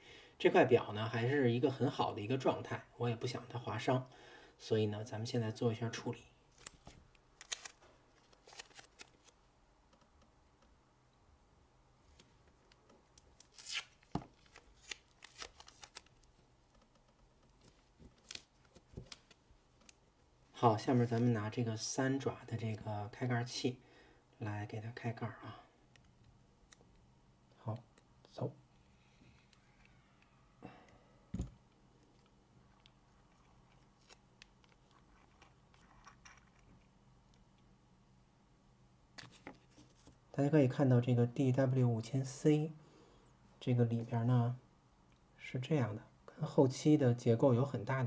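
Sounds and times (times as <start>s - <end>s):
adhesive tape crinkling: 6.5s - 9.4s, 12.1s - 20.0s, 32.0s - 36.0s
dull thump: 31.3s - 31.6s.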